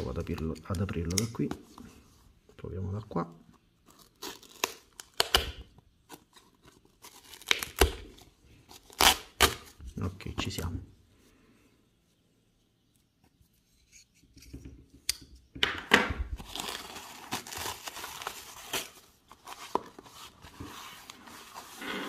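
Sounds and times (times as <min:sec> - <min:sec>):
packing wrap crinkling: 0:16.4 - 0:21.8.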